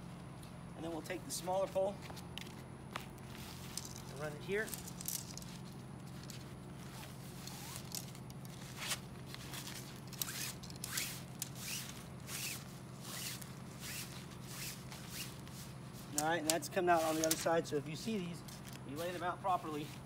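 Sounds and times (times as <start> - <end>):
pole scraping on fabric: 8.7 - 16.2.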